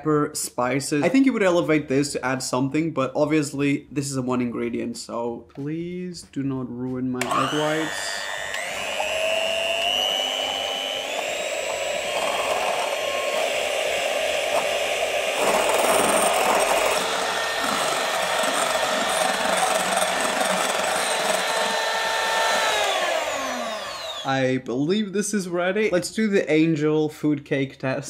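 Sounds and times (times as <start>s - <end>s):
electric hand mixer whining: 7.2s - 24.5s.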